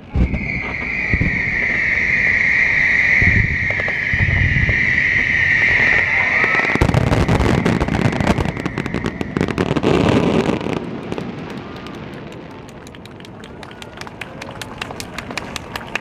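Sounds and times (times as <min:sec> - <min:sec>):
high firework whistle: 0:00.0 - 0:10.8
dense firework crackling: 0:00.0 - 0:16.0.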